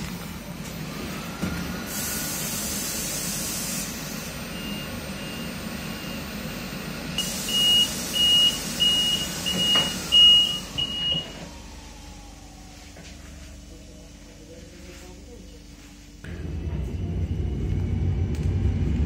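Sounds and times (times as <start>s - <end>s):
compressed air hiss: 1.8s - 4.4s, 7.2s - 10.8s
train door warning beeps: 7.2s - 11.5s.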